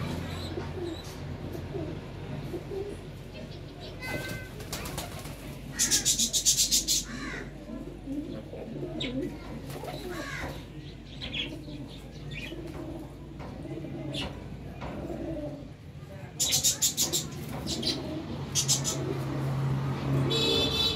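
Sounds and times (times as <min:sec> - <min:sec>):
pigeons cooing: 0:00.2 - 0:20.9
rapid wing flapping: 0:04.4 - 0:05.5.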